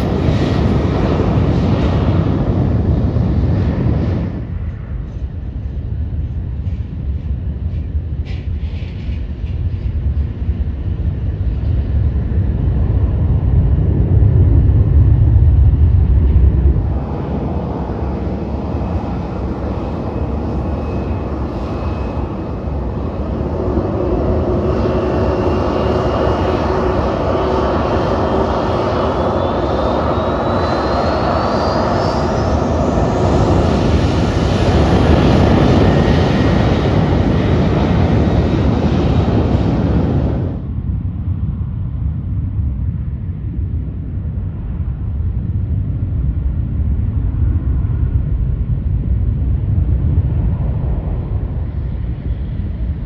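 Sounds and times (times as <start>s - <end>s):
light aircraft engine rumble: 0.0s - 53.0s
jet engines spooling up: 13.8s - 40.7s.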